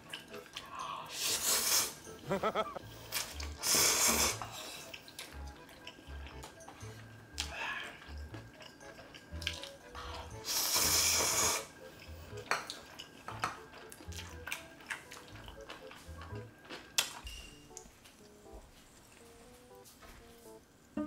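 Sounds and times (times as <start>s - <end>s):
light background music: 0.0s - 21.0s
loud noodle slurp: 3.1s - 4.4s
wet chewing and lip smacks: 7.4s - 10.0s, 12.0s - 17.9s.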